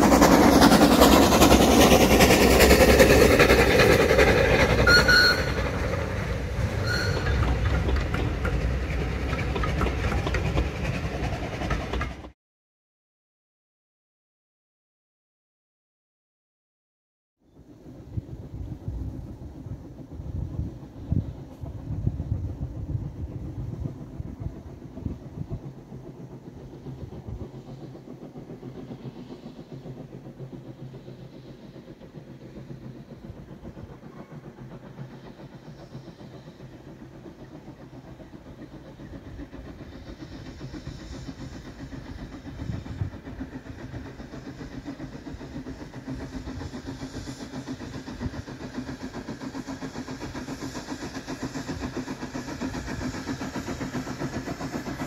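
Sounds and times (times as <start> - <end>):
distant train approaching: 0.0 - 12.4, 17.4 - 55.0
wind rumble on microphone: 18.0 - 25.6.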